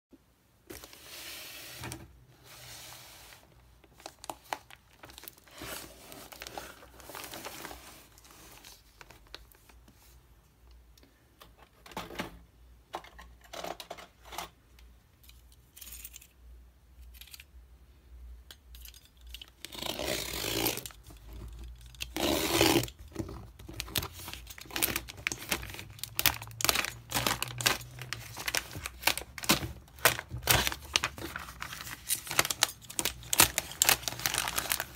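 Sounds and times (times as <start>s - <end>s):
plastic wrapping crinkling and tearing: 3.8s - 9.8s, 19.7s - 34.9s.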